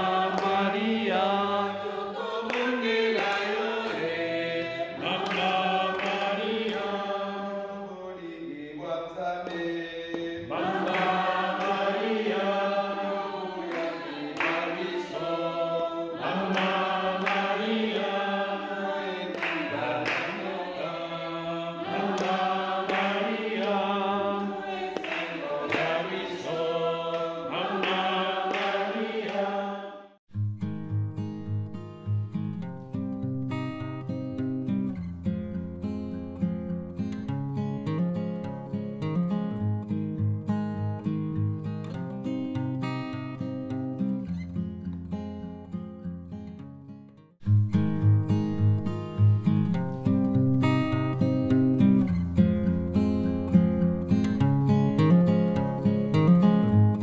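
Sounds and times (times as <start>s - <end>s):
choir singing a hymn: 0.0s - 8.2s, 10.3s - 30.2s.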